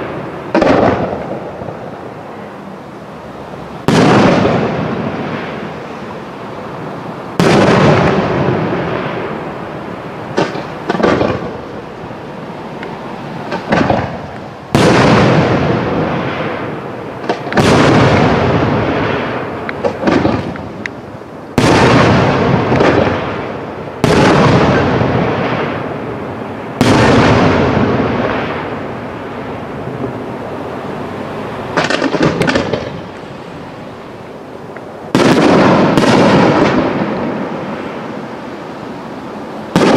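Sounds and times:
firework shells booming: 0.0s - 2.1s, 3.8s - 5.8s, 7.3s - 9.5s, 10.3s - 11.9s, 13.5s - 30.1s, 31.7s - 33.3s, 35.1s - 38.2s, 39.7s - 39.9s
small firework pops: 10.4s - 11.5s, 13.5s - 14.9s, 19.7s - 21.0s, 31.8s - 33.0s.

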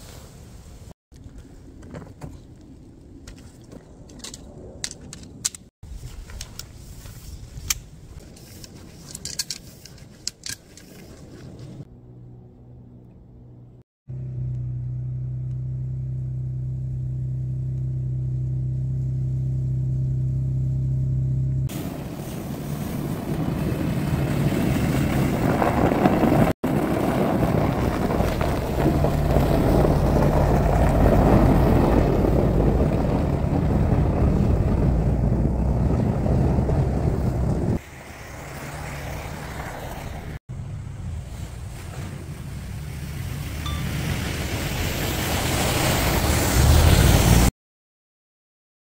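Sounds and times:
car engine running: 11.9s - 22.0s.

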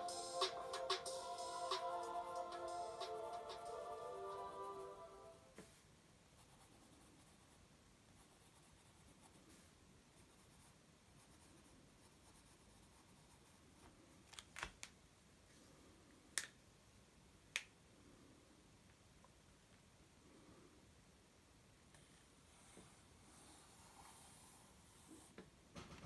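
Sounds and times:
pencil scratching on paper: 6.4s - 7.6s, 8.2s - 13.9s, 22.6s - 25.4s.

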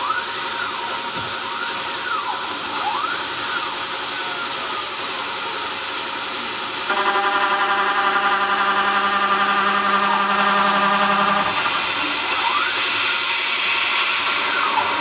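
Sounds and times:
hiss of mist coolant: 0.0s - 15.0s
milling machine cutting metal: 5.1s - 15.0s
steady pitched whine: 6.4s - 15.0s.

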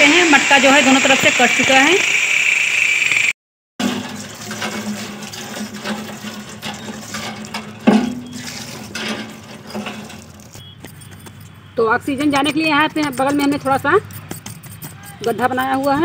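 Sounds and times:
water splashing over clay pot: 3.8s - 9.5s.

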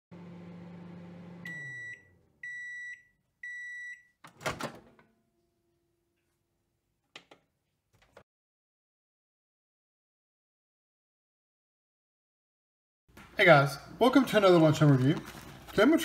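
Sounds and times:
microwave oven humming: 0.1s - 3.8s
microwave beeps: 1.2s - 4.2s.

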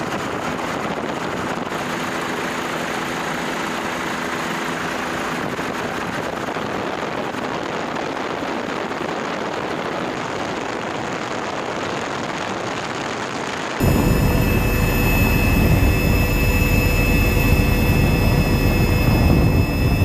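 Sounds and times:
steady rushing airflow: 13.8s - 20.0s.

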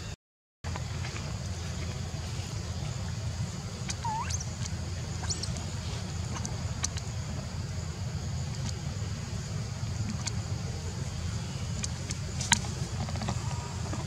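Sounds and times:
steady low rumble: 0.7s - 14.0s
high squeaks and chirps: 3.8s - 5.6s.

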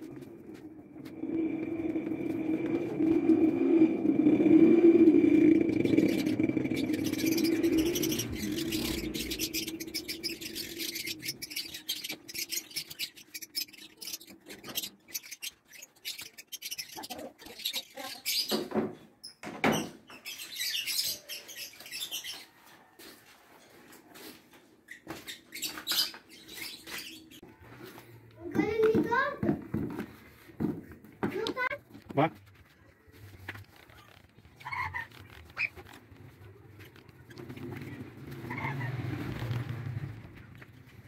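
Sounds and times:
paint roller squeaking and scraping: 0.0s - 18.5s, 33.1s - 41.0s.

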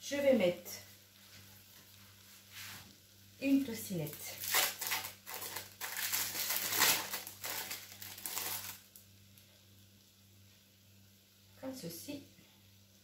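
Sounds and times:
plastic wrapper crinkling and tearing: 4.1s - 9.0s.

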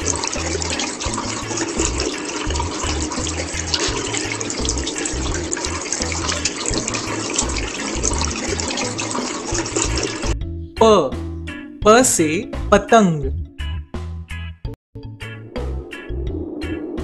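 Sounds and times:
tap water running: 0.0s - 10.4s
background music with bass: 9.8s - 17.0s.

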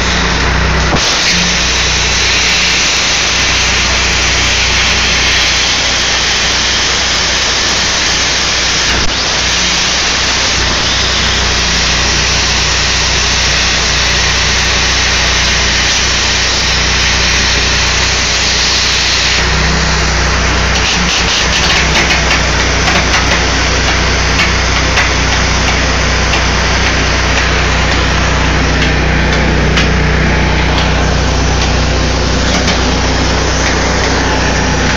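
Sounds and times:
plasma cutter hissing: 0.0s - 34.9s
low hum: 21.5s - 34.9s.

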